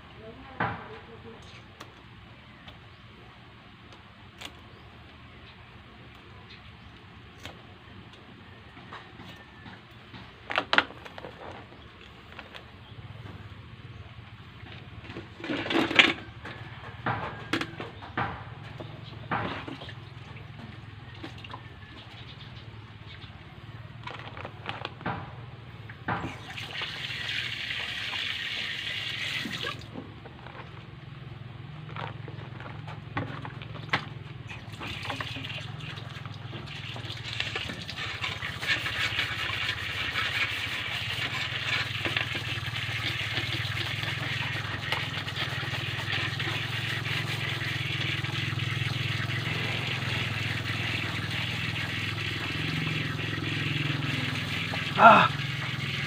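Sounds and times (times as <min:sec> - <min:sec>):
water running into sink: 0:26.2 - 0:29.9, 0:34.6 - 0:56.0.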